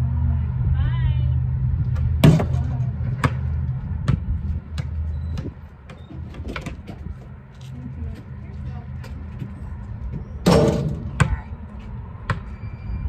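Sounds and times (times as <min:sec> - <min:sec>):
low engine-like hum: 0:00.0 - 0:13.0
ball bouncing on asphalt: 0:01.8 - 0:12.6
basketball hitting hoop: 0:02.2 - 0:04.2, 0:10.4 - 0:11.4.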